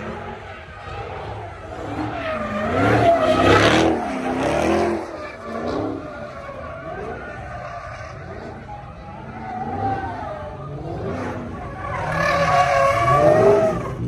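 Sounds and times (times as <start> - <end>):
tyres skidding: 0.0 - 14.0
car engine revving hard: 1.9 - 6.0.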